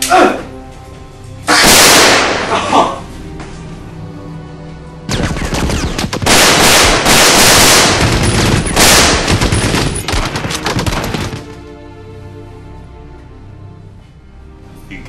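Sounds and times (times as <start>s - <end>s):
automatic gunfire: 5.1s - 11.4s.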